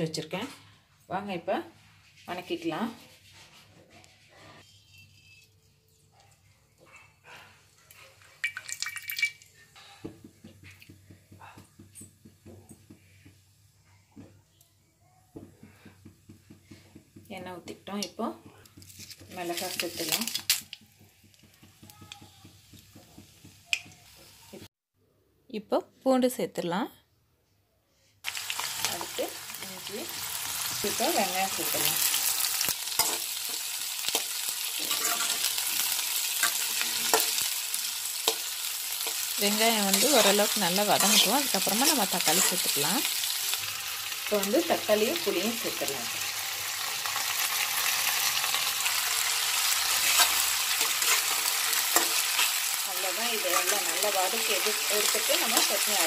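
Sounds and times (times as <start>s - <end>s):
onions sizzling in hot oil: 8.4s - 9.3s, 15.6s - 24.7s, 28.2s - 56.0s
oil pouring into a pan: 8.4s - 9.5s
spatula scraping and knocking pan: 32.9s - 37.5s, 49.2s - 52.6s, 53.3s - 56.0s.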